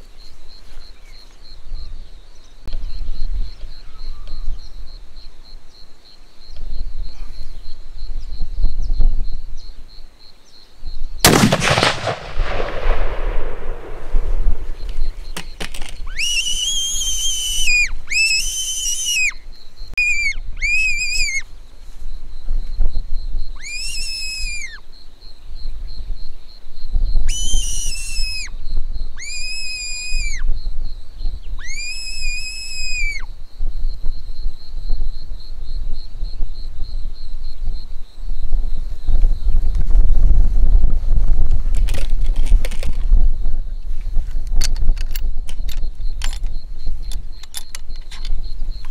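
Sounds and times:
rifle shot echoing: 11.2 - 15.2
fox whistle calls: 16.0 - 19.4, 20.0 - 21.5, 23.6 - 24.8, 27.2 - 28.5.

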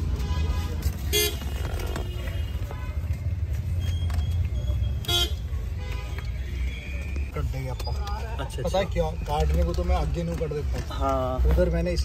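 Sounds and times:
low traffic rumble: 0.0 - 12.0
car horn toot: 0.2 - 3.1, 5.0 - 7.0.

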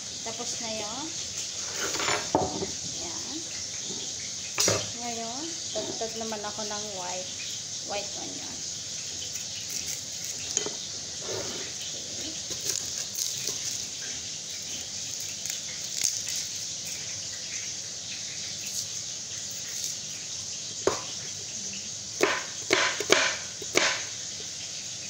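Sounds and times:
knife knocking on cutting board: 2.1 - 2.7, 20.8 - 21.1, 22.2 - 24.1
knife cutting onion: 9.3 - 11.7, 12.4 - 17.1, 18.6 - 21.3, 22.2 - 24.1.

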